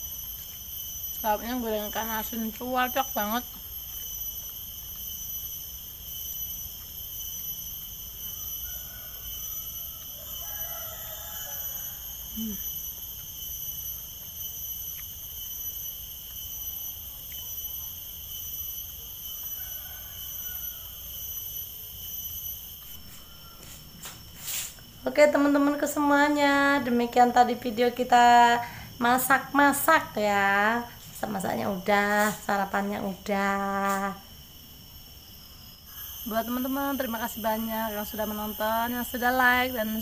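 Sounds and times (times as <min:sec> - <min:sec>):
shrill insect chorus: 0:00.0 - 0:40.0.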